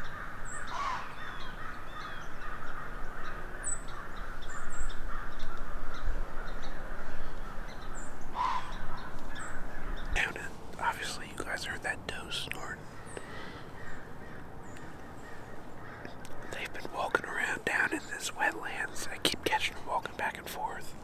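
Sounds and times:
crows cawing: 0.0s - 11.2s, 12.8s - 17.8s
songbirds chirping: 0.0s - 21.0s.

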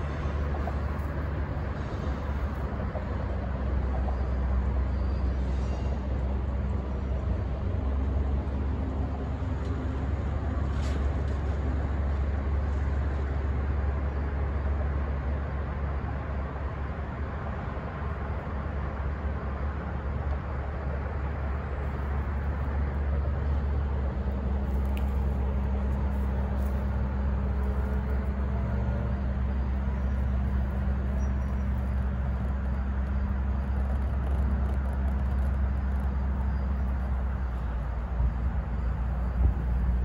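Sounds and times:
freight train rumbling past: 0.0s - 40.0s
low hum: 16.1s - 40.0s.

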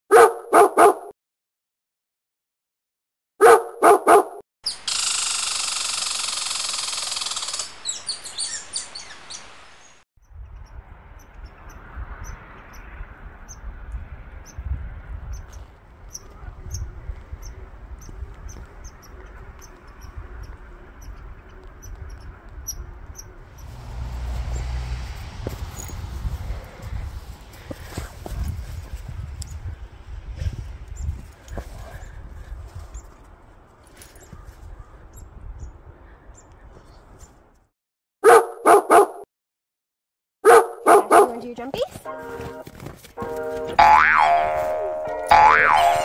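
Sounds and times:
dog barking: 0.1s - 1.1s, 3.4s - 4.4s, 38.2s - 39.2s, 40.4s - 41.4s
wind buffeting microphone: 10.2s - 37.2s.

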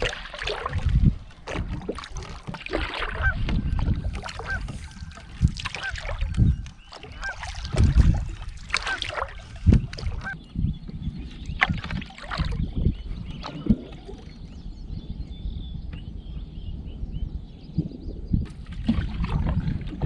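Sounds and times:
paddle strokes and water splashing: 0.0s - 14.6s, 18.4s - 20.0s
water birds calling: 0.0s - 20.0s.

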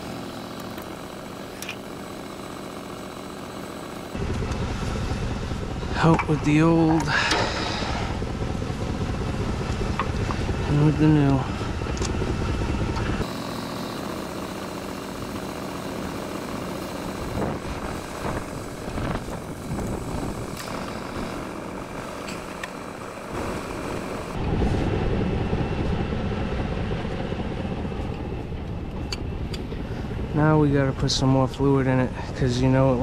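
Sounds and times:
truck engine idling: 0.0s - 24.4s.

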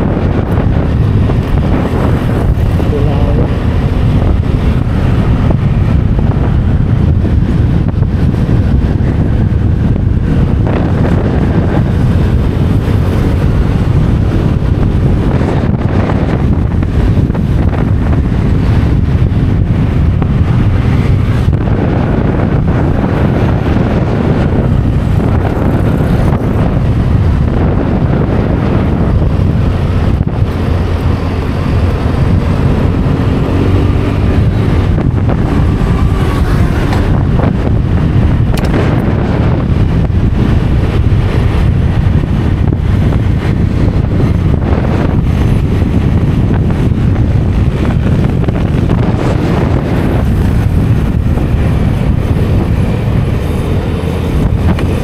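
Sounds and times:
motor scooter engine running: 0.0s - 55.0s
road noise: 0.0s - 55.0s
wind buffeting microphone: 0.0s - 55.0s.

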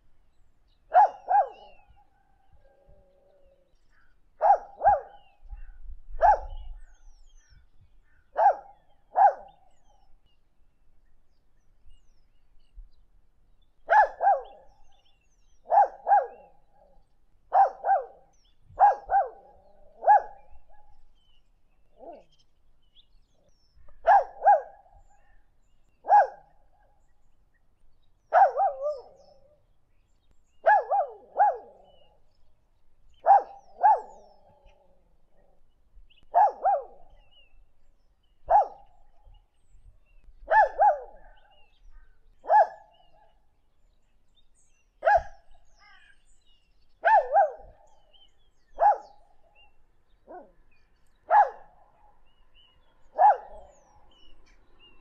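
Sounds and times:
dog barking: 0.9s - 1.8s, 4.4s - 5.3s, 6.2s - 6.7s, 8.3s - 9.6s, 13.9s - 14.7s, 15.6s - 16.5s, 17.5s - 20.9s, 22.0s - 22.3s, 24.0s - 24.8s, 26.0s - 26.5s, 28.3s - 29.3s, 30.6s - 32.0s, 33.2s - 34.8s, 36.3s - 37.2s, 38.5s - 38.9s, 40.4s - 41.5s, 42.4s - 43.0s, 45.0s - 45.4s, 47.0s - 47.9s, 48.8s - 49.2s, 50.2s - 50.6s, 51.3s - 51.8s, 53.1s - 53.9s.

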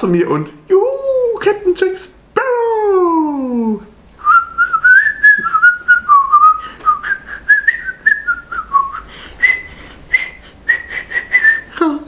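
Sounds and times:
man whistling a tune: 4.2s - 11.8s.

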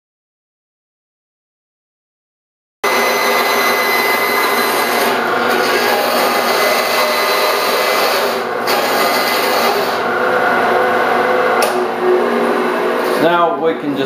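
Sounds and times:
bandsaw cutting wood: 2.8s - 11.8s.

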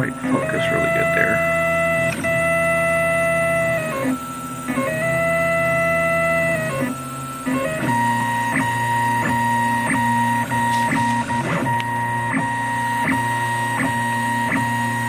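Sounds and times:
stepper motors whining: 0.0s - 15.0s
print head clicks: 7.4s - 15.0s.

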